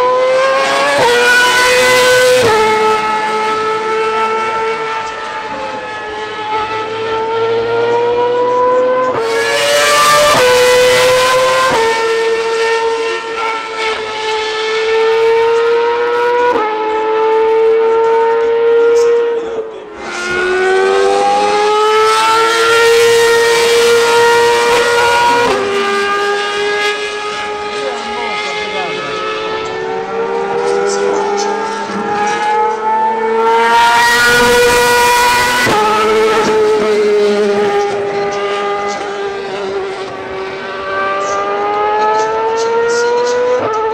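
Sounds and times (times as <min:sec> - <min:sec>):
racing car engines screaming: 0:17.6 - 0:43.9.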